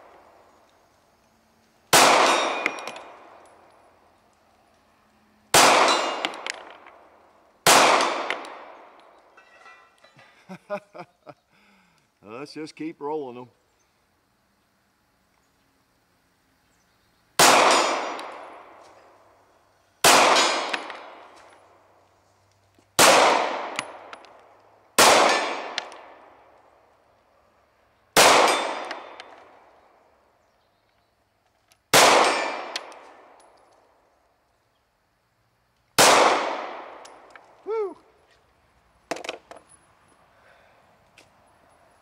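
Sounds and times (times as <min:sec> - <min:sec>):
pistol shots echoing: 0:01.9 - 0:03.6, 0:05.5 - 0:07.0, 0:07.6 - 0:09.0, 0:17.4 - 0:18.8, 0:20.0 - 0:21.3, 0:23.0 - 0:24.3, 0:25.0 - 0:26.3, 0:28.2 - 0:29.5, 0:31.9 - 0:33.4, 0:36.0 - 0:37.3
steel target clanking: 0:02.0 - 0:03.1, 0:05.6 - 0:06.8.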